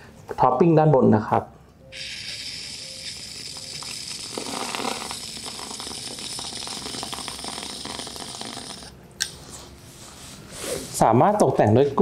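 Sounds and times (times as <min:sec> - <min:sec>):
cream sputtering from nozzle: 0:01.9 - 0:08.9
gas hiss from cream dispenser: 0:01.9 - 0:08.9.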